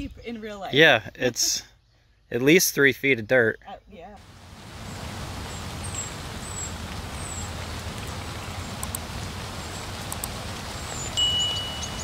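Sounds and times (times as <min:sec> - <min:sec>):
clicks: 0:08.8 - 0:09.0, 0:10.0 - 0:10.4
faint high chirps: 0:10.8 - 0:12.0.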